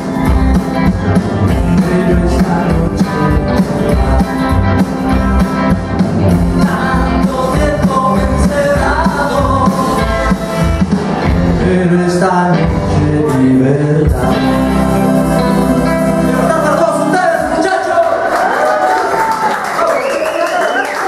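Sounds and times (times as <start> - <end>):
plucked double bass: 0.0 - 12.0
electric guitar: 0.0 - 19.5
rock and roll band playing: 0.0 - 20.0.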